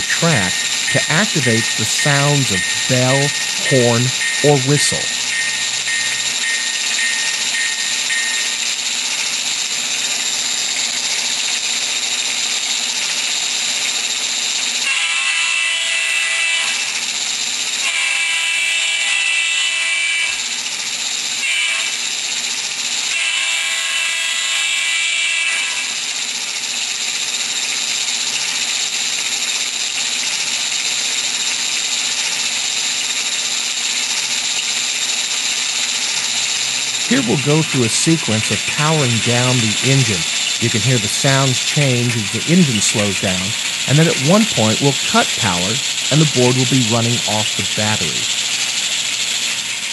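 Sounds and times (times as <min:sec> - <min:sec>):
locomotive whistle blasts: 0:00.0 - 0:08.7, 0:14.9 - 0:16.8, 0:17.8 - 0:20.4, 0:21.4 - 0:22.0, 0:23.1 - 0:25.9
running locomotive sound: 0:00.0 - 0:17.2, 0:17.8 - 0:49.9.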